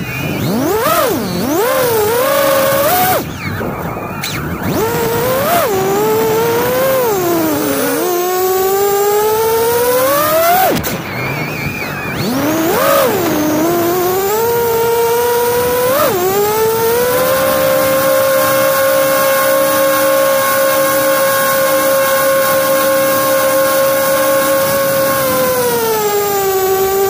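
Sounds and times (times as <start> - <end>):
drone propellers buzzing whine: 0.0 - 27.0.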